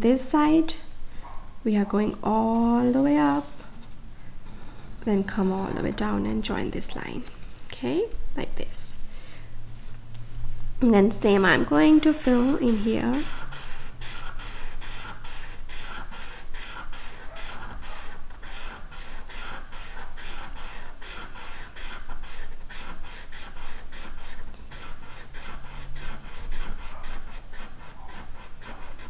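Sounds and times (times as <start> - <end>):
marker scratching on paper: 3.2 - 7.0, 11.1 - 29.0.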